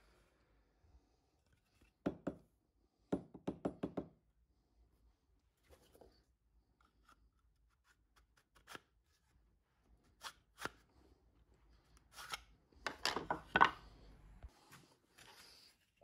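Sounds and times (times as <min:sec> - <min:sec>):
wood knocking and rubbing on workbench: 0:12.9 - 0:13.8.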